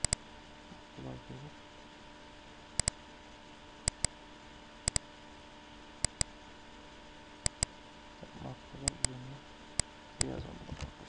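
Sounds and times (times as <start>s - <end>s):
electrical hum: 0.0s - 11.0s
computer mouse double clicks: 2.8s - 3.0s, 3.9s - 4.1s.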